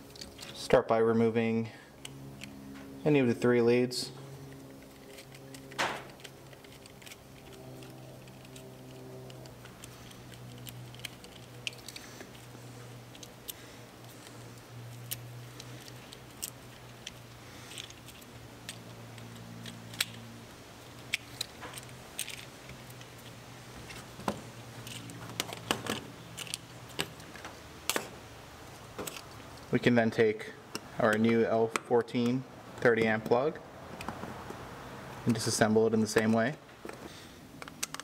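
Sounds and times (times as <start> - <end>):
low steady hum: 0.0 - 38.0
plug parts clicking: 13.1 - 20.2, 20.9 - 28.1, 37.6 - 38.0.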